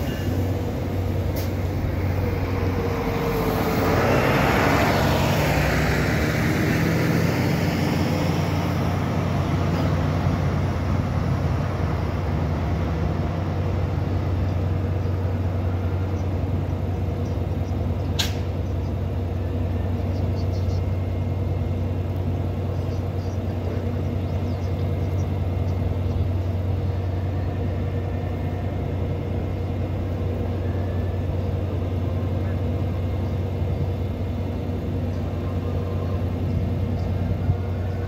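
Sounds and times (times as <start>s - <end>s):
diesel locomotive idling: 0.0s - 38.0s.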